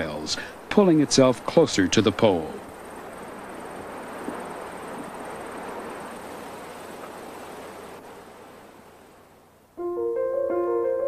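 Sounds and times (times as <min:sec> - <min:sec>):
soft rushing hiss: 0:00.0 - 0:11.0
sustained keyboard chord: 0:09.8 - 0:11.0.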